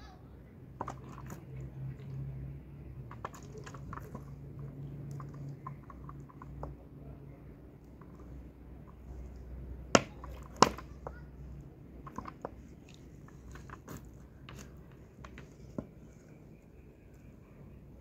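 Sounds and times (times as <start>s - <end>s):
faint low hum: 0.0s - 18.0s
handling clicks and crackles: 3.0s - 6.8s, 12.0s - 16.2s.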